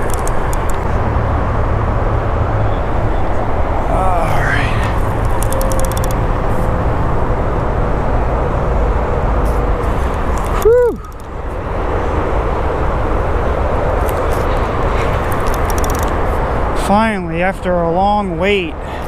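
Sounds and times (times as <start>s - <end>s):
rising and falling call: 10.5s - 11.3s.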